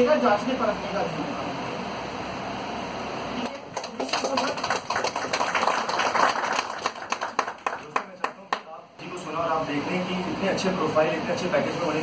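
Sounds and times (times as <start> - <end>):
small group applauding: 3.4 - 8.8.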